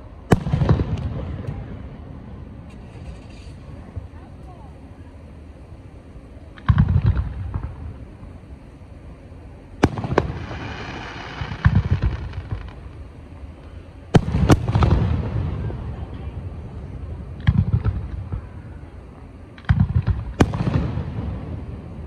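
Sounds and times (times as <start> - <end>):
firework bangs: 0.0 - 4.4, 6.5 - 8.5, 9.7 - 22.0
firework crack: 0.0 - 22.0
firework crackling: 0.0 - 22.0
firework shells booming: 0.3 - 1.9, 6.5 - 8.4, 9.8 - 13.1, 14.1 - 22.0.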